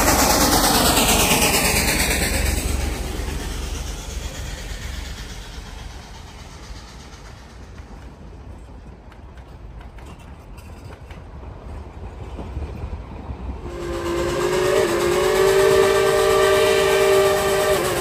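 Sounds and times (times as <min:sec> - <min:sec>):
steam train rumble: 0:00.0 - 0:18.0
steam whistle blowing: 0:13.6 - 0:18.0.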